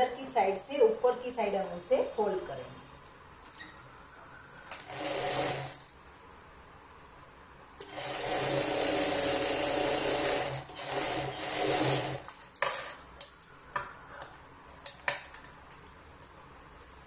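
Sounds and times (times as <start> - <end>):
sewing machine running: 4.8 - 6.0, 7.8 - 12.3.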